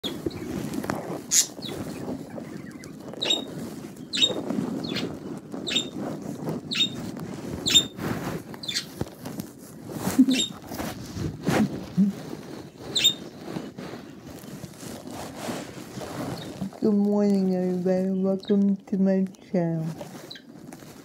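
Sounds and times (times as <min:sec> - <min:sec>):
budgerigars chirping: 0:01.3 - 0:05.9, 0:06.7 - 0:07.0, 0:07.6 - 0:08.0, 0:08.6 - 0:08.9, 0:10.2 - 0:10.6, 0:12.9 - 0:13.2.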